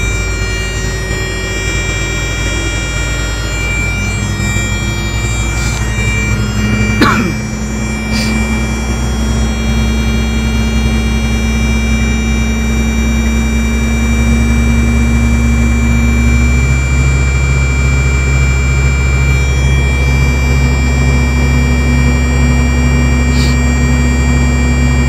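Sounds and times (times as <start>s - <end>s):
truck engine running: 0.0s - 25.0s.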